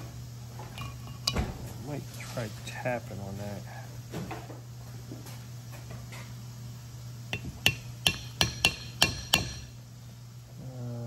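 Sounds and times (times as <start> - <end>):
hammer tapping metal punch: 7.3 - 9.7.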